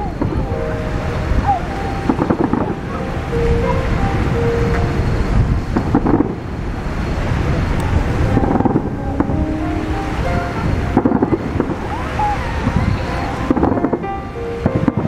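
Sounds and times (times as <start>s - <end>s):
distant fireworks rumble: 0.0s - 15.0s
wind buffeting microphone: 0.0s - 15.0s
fireworks bangs: 1.5s - 4.1s, 5.7s - 6.4s, 7.8s - 15.0s.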